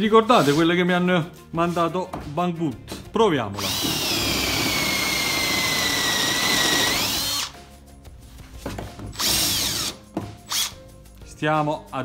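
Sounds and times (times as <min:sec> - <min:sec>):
power drill cutting metal: 0:03.6 - 0:07.5, 0:09.2 - 0:10.8.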